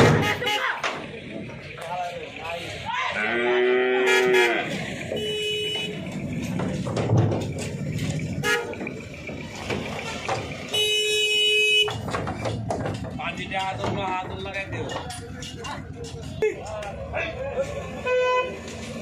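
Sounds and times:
vehicle horn tooting: 0:00.0 - 0:00.8, 0:03.2 - 0:06.0, 0:08.4 - 0:08.8, 0:10.7 - 0:12.0, 0:18.0 - 0:18.6
crowd and traffic background: 0:00.0 - 0:19.0.

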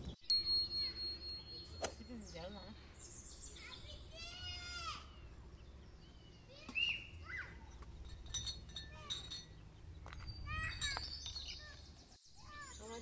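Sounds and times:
glasses clinking on a tray: 0:07.6 - 0:11.9.

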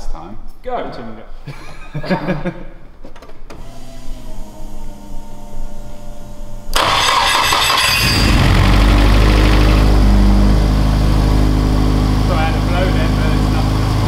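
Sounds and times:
car engine starting and idling: 0:06.7 - 0:14.0
car engine cranking: 0:06.8 - 0:12.0.

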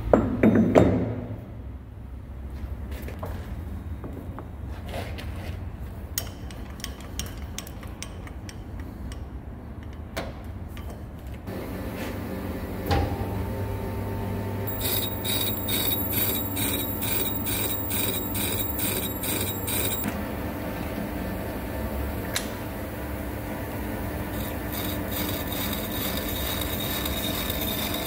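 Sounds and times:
metal lathe running: 0:14.6 - 0:20.1, 0:24.2 - 0:28.0.

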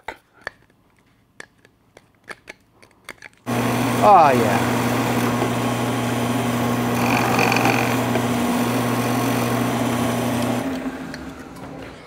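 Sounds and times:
plastic grinding on spinning tool: 0:03.5 - 0:11.6
drill press motor humming: 0:03.5 - 0:12.0.

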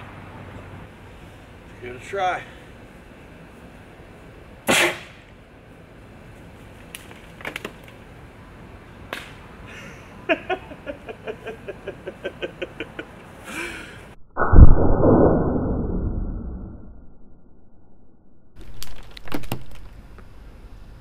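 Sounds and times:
air cannon blast: 0:04.7 - 0:05.2, 0:14.4 - 0:16.7.

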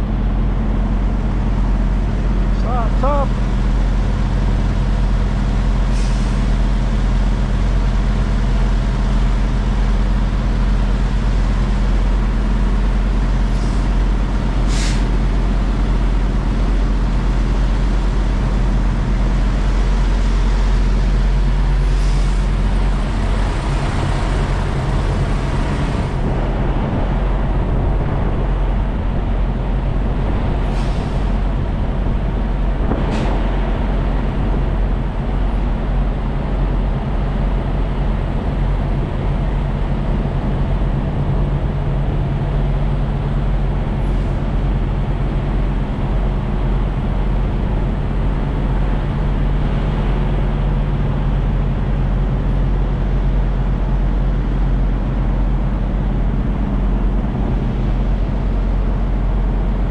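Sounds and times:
diesel truck engines idling: 0:00.0 - 0:59.9
air brake hisses: 0:14.7 - 0:15.1.

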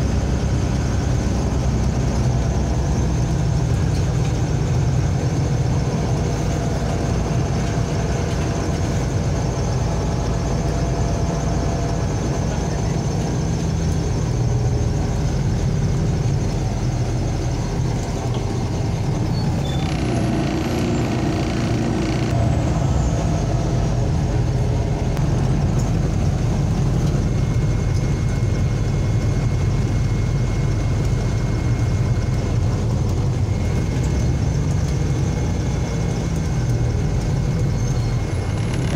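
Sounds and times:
bus engine and road rumble: 0:00.0 - 0:38.9
thin high whine: 0:17.0 - 0:25.2.

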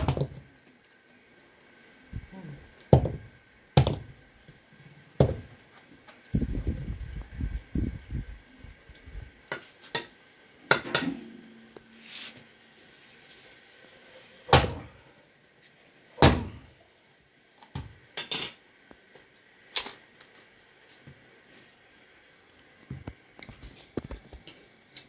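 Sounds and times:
blade hacking coconut shell: 0:16.2 - 0:16.6.

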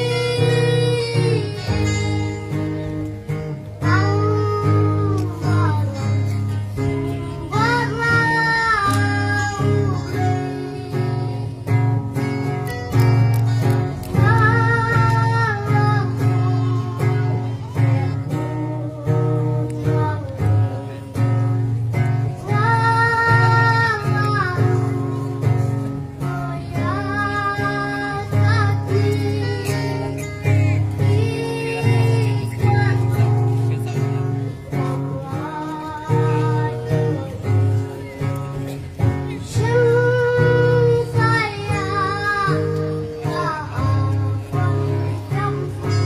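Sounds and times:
boy singing in high voice: 0:00.0 - 0:46.0
electric guitar: 0:00.0 - 0:46.0
strummed acoustic guitar: 0:00.0 - 0:46.0.

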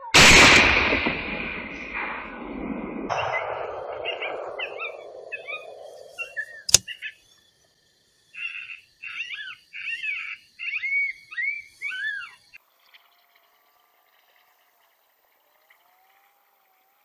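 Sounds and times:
sharp loud crack: 0:00.2 - 0:05.8
high arching chirps: 0:04.0 - 0:12.6.

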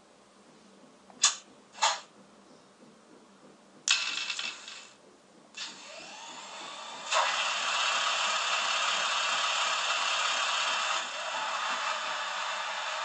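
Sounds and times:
locomotive machinery running noise: 0:05.4 - 0:13.0.

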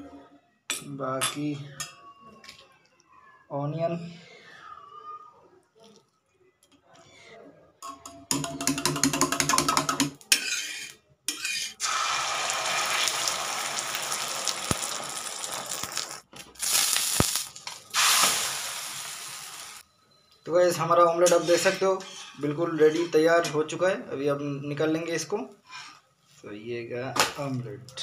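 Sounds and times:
spoon beating eggs in metal cup: 0:08.0 - 0:11.8
egg sizzling on griddle: 0:10.3 - 0:19.8.

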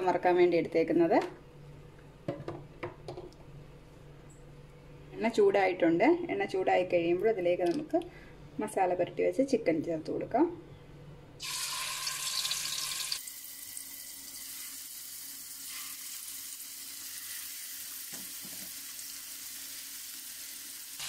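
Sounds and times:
chicken sizzling in hot oil: 0:11.4 - 0:21.0.

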